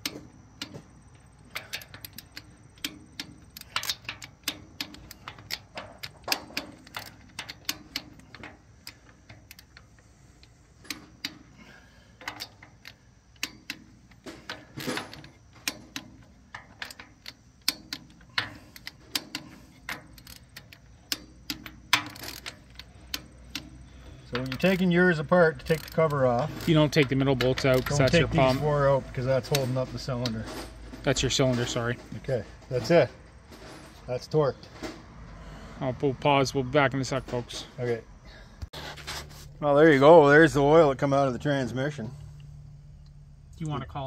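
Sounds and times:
torque wrench clicking: 0.0 - 28.6.

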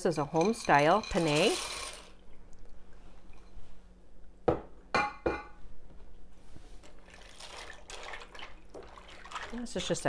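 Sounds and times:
kitchenware clinking: 0.0 - 2.1, 4.5 - 5.6.

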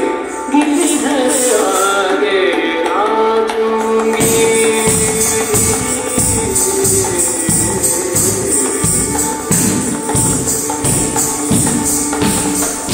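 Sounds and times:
dance music with jingling percussion: 4.2 - 12.9.

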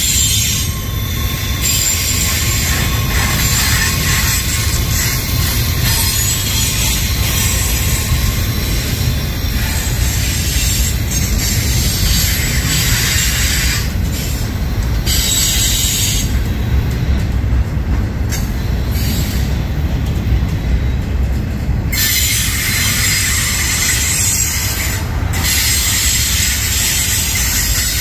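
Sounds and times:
high-pitched wheel squeal: 0.0 - 14.4, 21.9 - 28.0
train wheels rumbling on rail: 0.0 - 28.0.

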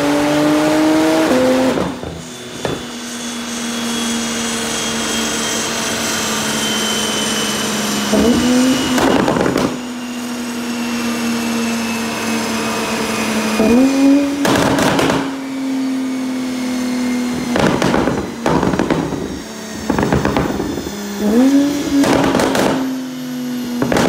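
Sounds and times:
engine blipped: 6.0 - 24.0
exhaust crackles and pops: 8.1 - 9.9, 14.4 - 15.4, 17.3 - 23.0, 23.8 - 24.0.

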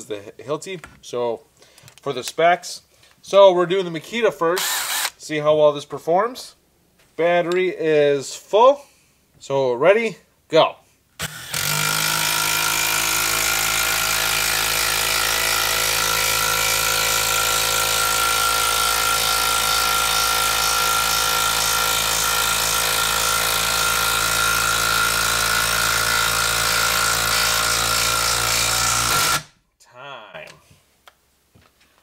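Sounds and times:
impact driver hammering: 11.2 - 29.5.

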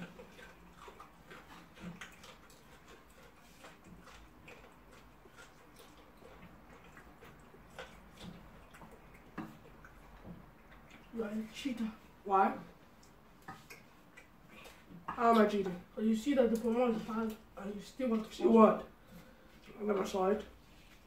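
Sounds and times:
chewing and lip smacks: 0.0 - 11.2, 12.8 - 15.8.

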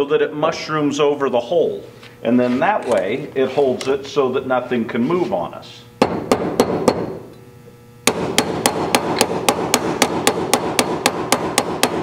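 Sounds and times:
hammer striking rivet on metal: 8.1 - 12.0.

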